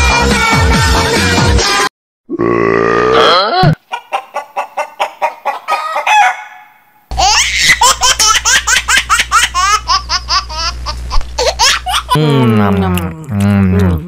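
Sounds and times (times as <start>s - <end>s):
chicken clucking: 3.8s - 6.7s.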